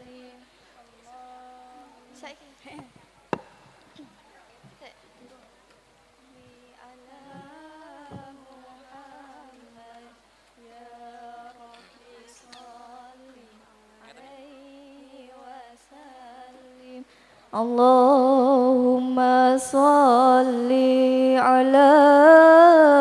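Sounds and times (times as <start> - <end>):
person singing slow melody: 0.0 - 2.2, 6.2 - 23.0.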